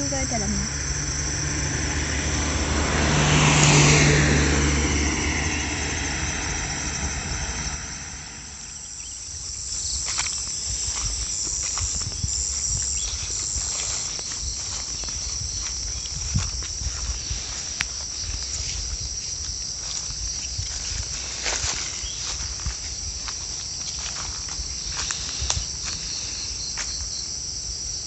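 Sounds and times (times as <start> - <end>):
vehicle passing by: 0.0 - 22.4
insects chirring: 0.0 - 28.0
footsteps on dry leaves: 9.0 - 27.2.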